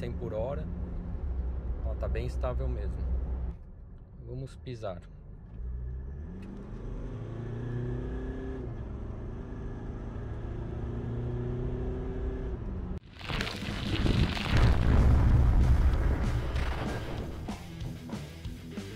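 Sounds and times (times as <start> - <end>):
diesel engine accelerating: 5.2 - 13.0.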